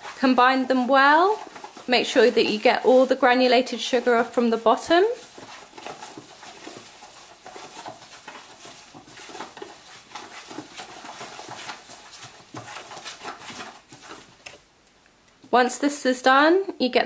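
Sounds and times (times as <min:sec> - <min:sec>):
glove rubbing plastic tub: 0:00.0 - 0:14.7
wet paste squishing: 0:00.0 - 0:15.0.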